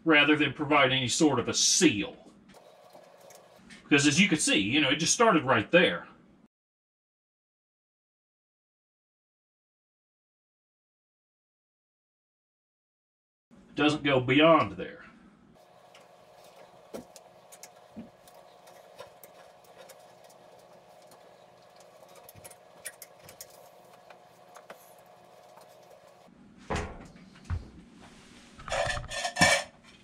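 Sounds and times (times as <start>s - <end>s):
faint steady hum: 15.1s - 26.5s
metallic clicks and scrapes: 28.6s - 29.8s.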